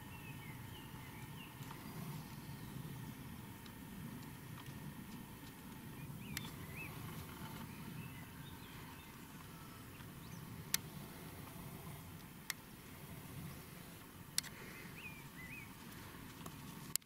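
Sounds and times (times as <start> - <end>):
faint bird chirps: 0.0 - 3.3, 5.9 - 10.8, 14.5 - 16.2
low steady rumble: 0.0 - 17.0
sharp clicks: 3.6 - 7.7, 9.4 - 10.9, 14.3 - 14.6.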